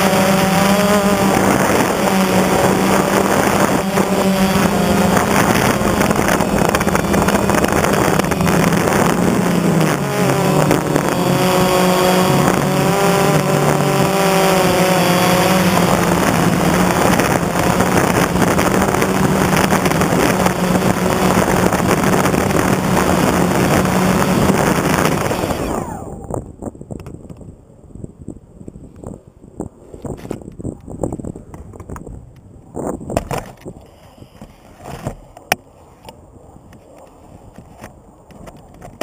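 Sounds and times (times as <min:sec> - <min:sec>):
drone motors buzzing: 0:00.0 - 0:26.4.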